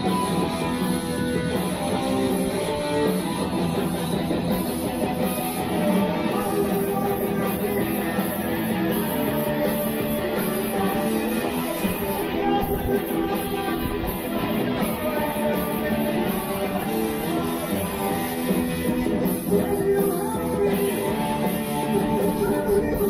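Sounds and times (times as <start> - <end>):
electric guitar playing rock: 0.0 - 23.0.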